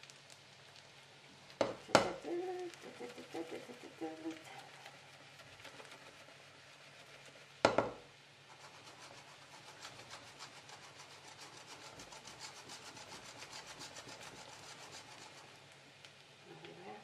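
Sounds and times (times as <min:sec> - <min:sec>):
loud knock: 0:07.7 - 0:08.0.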